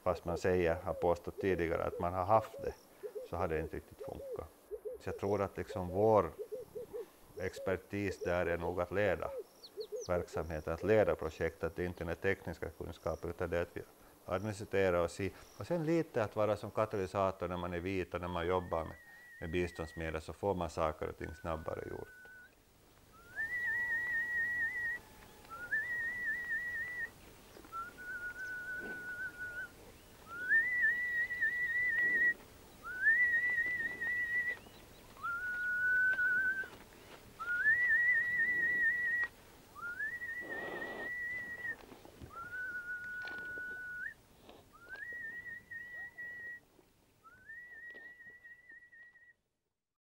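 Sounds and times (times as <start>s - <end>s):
person whistling a slow tune: 21.4s - 22.5s, 23.2s - 27.1s, 27.7s - 29.7s, 30.3s - 36.8s, 37.4s - 44.2s, 44.8s - 46.6s, 47.2s - 49.4s.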